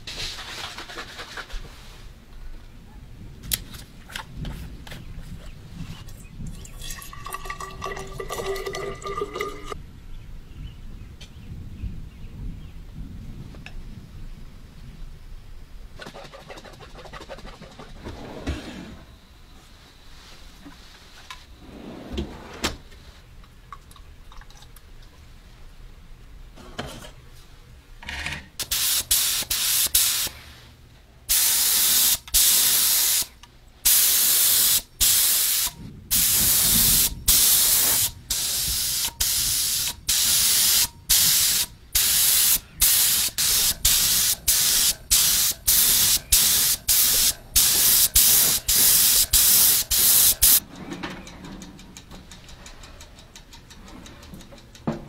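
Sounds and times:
spray gun hissing in bursts: 28.6s - 30.5s, 31.3s - 50.6s.

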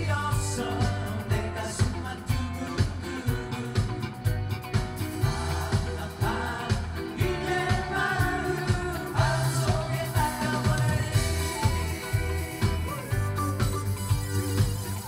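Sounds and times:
person singing: 0.0s - 4.3s, 5.2s - 15.0s
bass line: 0.0s - 15.0s
live band playing pop song: 0.0s - 15.0s
drum beat: 3.8s - 15.0s.

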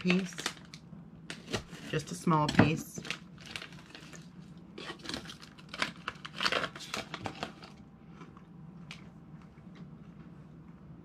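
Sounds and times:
wafer cookie crunching: 0.0s - 10.8s.

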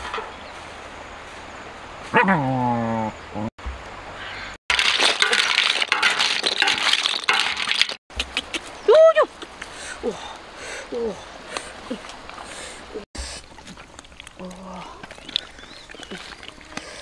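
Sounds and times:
shells clattering against metal and wicker: 4.7s - 8.0s.

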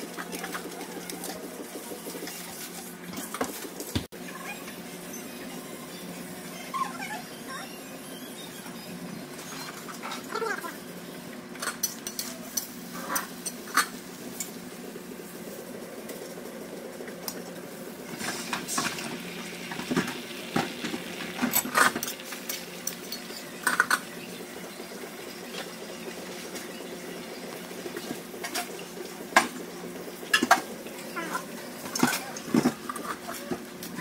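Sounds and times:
kitchen hum: 0.0s - 34.0s
butter sizzling on griddle: 18.0s - 32.1s.

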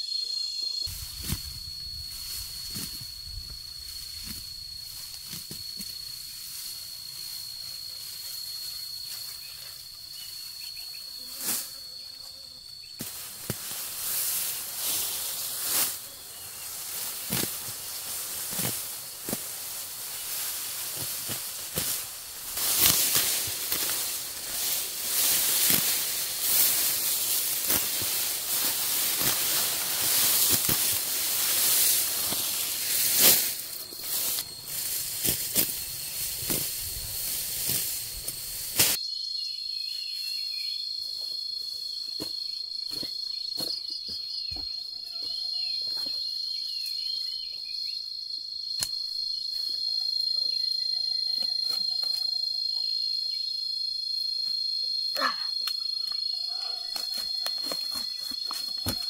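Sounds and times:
insects trilling: 0.0s - 59.0s
loud steady hiss: 13.0s - 39.0s.

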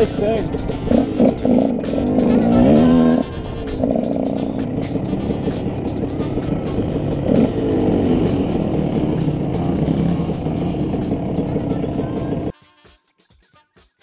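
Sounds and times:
dirt bike engine running: 0.0s - 12.5s
faint plucked guitar music: 0.0s - 12.5s.

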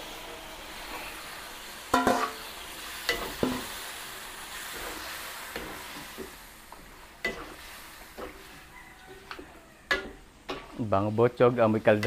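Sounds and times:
sauce sizzling: 0.0s - 12.0s
metal utensil clanking on pan: 1.9s - 2.5s, 3.1s - 3.7s, 7.2s - 7.6s, 9.1s - 10.8s.

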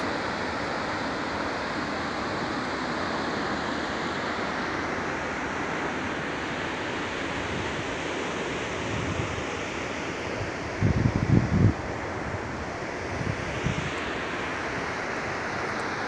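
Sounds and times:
distant waterfall roar: 0.0s - 16.0s
wind buffeting microphone: 10.4s - 14.0s.

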